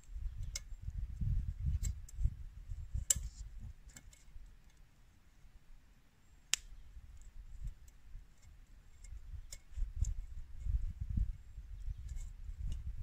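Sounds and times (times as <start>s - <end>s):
campfire crackling: 6.4s - 8.0s.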